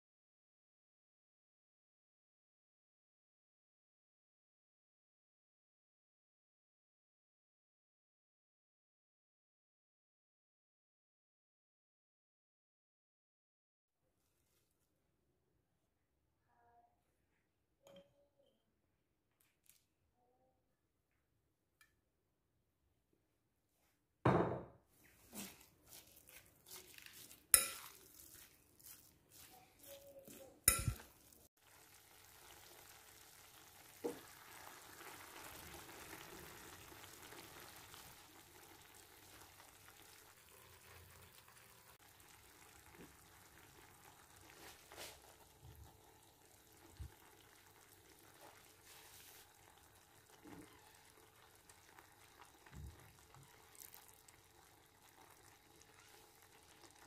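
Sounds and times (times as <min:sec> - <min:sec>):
food sizzling in a pan: 0:25.3 - 0:57.0.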